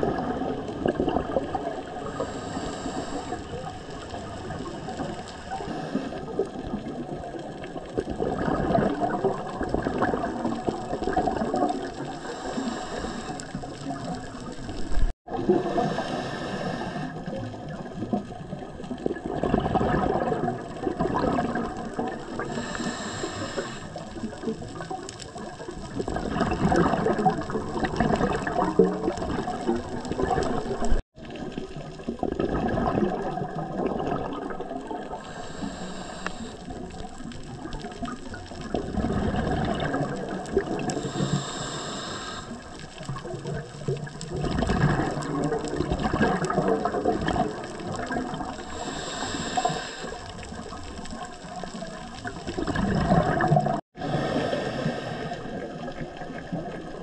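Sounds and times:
bubbling exhaled air: 0.0 - 57.0
hissing regulator inhales: 2.1 - 3.7, 12.2 - 13.6, 15.7 - 17.3, 22.4 - 24.0, 35.2 - 36.7, 40.9 - 42.7, 48.6 - 50.4, 54.0 - 55.6.

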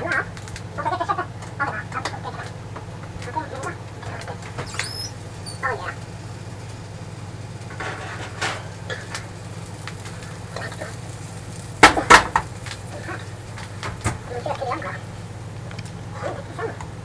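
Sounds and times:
metal pan clattering: 7.7 - 9.1.

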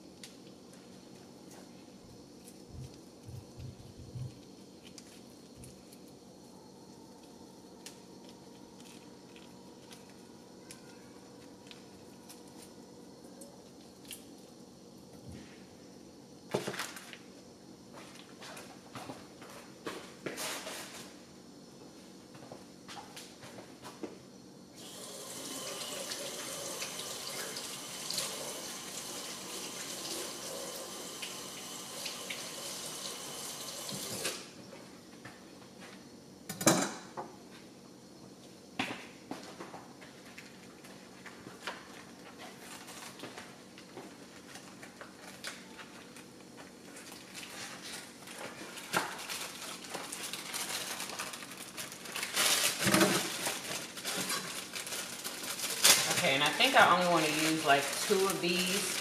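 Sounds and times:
plastic packaging rustling: 16.6 - 17.2, 44.2 - 59.0
kitchen tap running: 24.8 - 34.4.

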